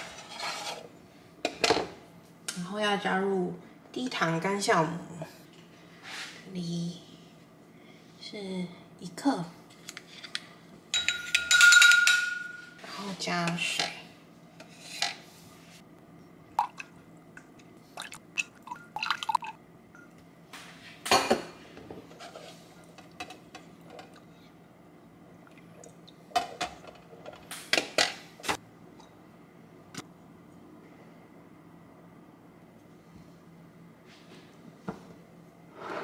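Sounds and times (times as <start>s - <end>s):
utensil clinking against container: 11.0s - 12.6s.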